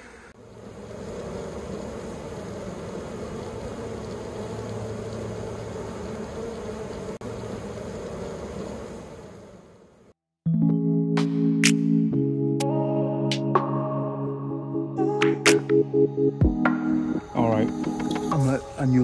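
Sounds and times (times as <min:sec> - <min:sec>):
bee swarm buzzing: 0:00.0 - 0:10.2.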